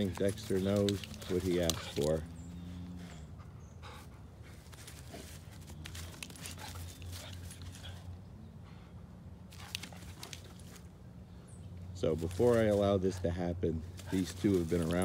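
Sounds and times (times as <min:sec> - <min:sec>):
puppies scuffling on grass: 0:00.0 - 0:03.2, 0:04.5 - 0:08.1, 0:11.9 - 0:15.0.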